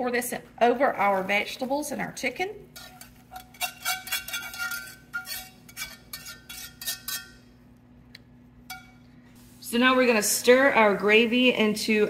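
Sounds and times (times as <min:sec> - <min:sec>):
whisk clinking on metal: 0:02.8 - 0:07.4, 0:08.7 - 0:09.0.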